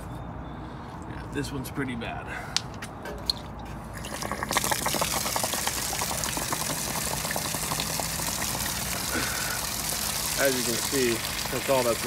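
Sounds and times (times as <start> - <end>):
water spattering: 3.9 - 12.0
water gushing onto concrete: 4.0 - 12.0.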